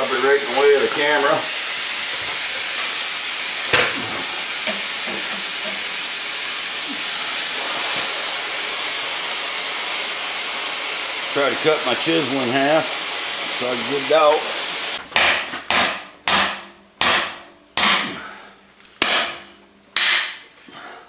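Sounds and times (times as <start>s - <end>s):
plasma cutter hissing: 0.0s - 15.0s.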